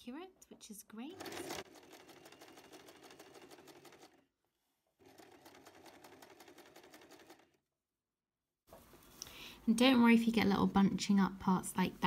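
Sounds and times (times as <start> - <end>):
electric sewing machine stitching: 1.1 - 4.2, 5.0 - 7.6.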